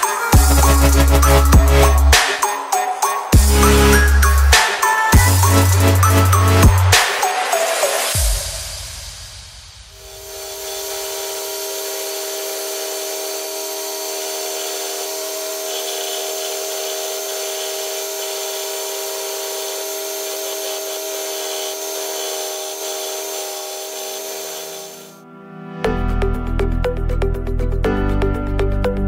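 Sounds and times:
belt sander sanding wood: 10.0 - 25.2.

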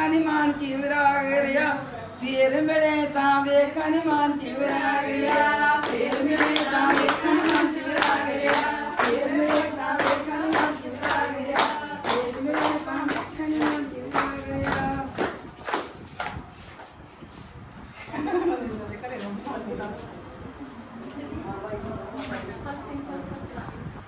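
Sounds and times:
group of voices singing: 0.0 - 15.5
rhythmic hand claps: 5.2 - 16.9.

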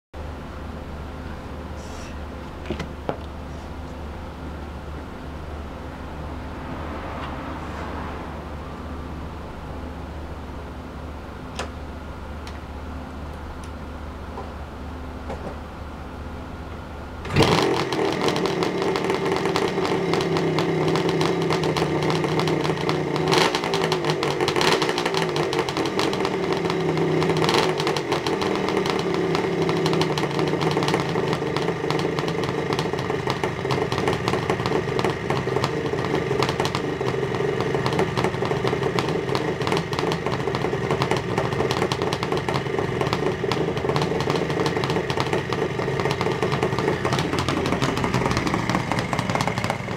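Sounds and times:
motorcycle engine starting and revving: 17.2 - 49.9.

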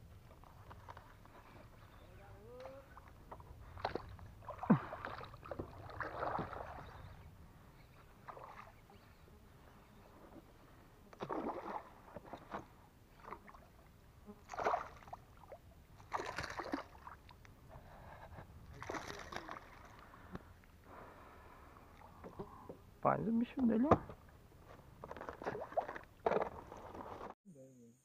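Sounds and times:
fish splashing in water: 3.7 - 7.2, 11.2 - 12.5, 14.4 - 17.4, 18.7 - 20.1.

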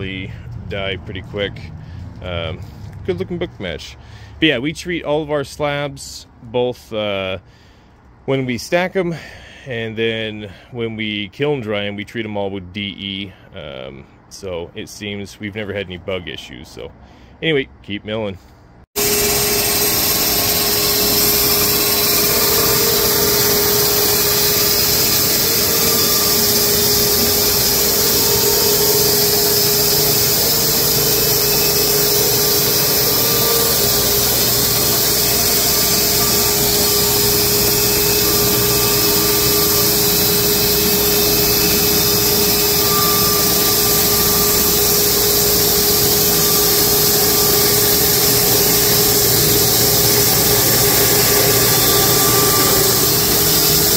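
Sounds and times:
band sawmill sawing log: 19.0 - 53.9.

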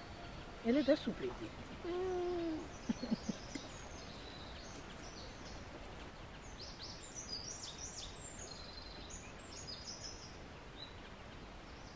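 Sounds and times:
outdoor background hiss: 0.0 - 11.9
small birds chirping: 0.0 - 11.9.

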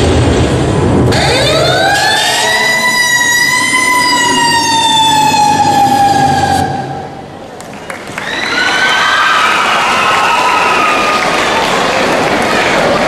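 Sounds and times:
fire engine siren wail: 1.1 - 7.3.

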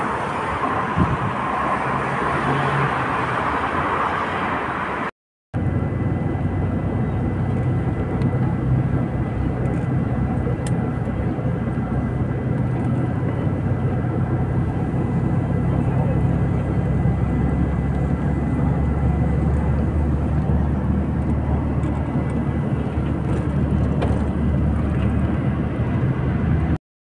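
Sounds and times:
vehicle engine humming: 0.0 - 26.8.

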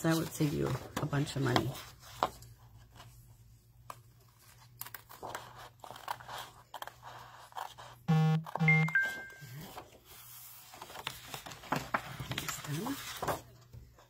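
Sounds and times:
scissors snipping paper: 4.6 - 7.8
paper rustling: 9.6 - 14.0.

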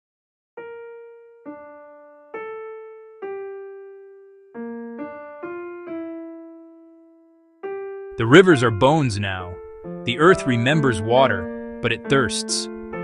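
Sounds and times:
slow solo piano melody: 0.6 - 8.2, 9.6 - 10.1.

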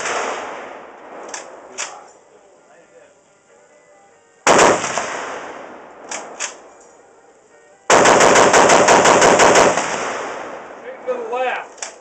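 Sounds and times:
faint sharp cracks: 1.2 - 2.1, 11.7 - 12.0
machine gun firing bursts: 4.5 - 5.3, 7.9 - 10.6.

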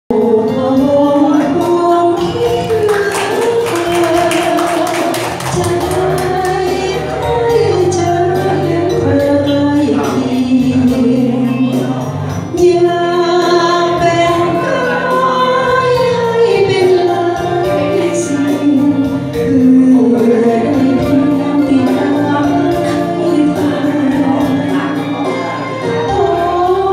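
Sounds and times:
instrumental backing music: 0.1 - 26.9
woman singing into microphone: 0.1 - 26.9.

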